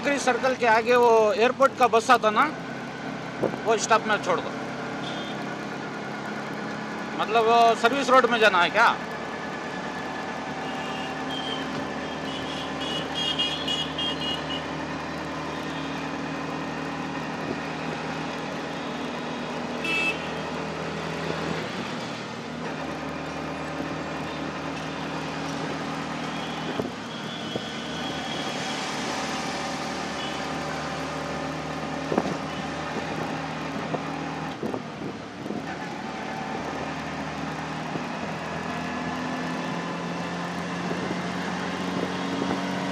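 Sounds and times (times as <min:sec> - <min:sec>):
high-pitched traffic sounds: 0:09.7 - 0:17.0, 0:18.6 - 0:31.5.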